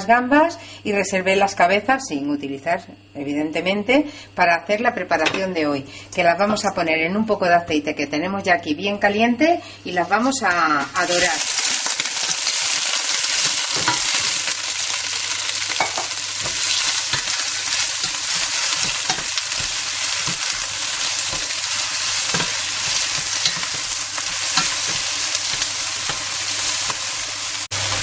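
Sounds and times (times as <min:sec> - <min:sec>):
prawns sizzling in hot oil: 0:10.6 - 0:28.0.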